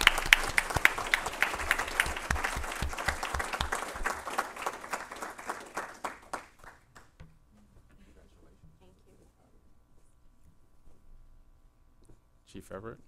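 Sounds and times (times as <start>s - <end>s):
audience applauding: 0.0s - 7.2s.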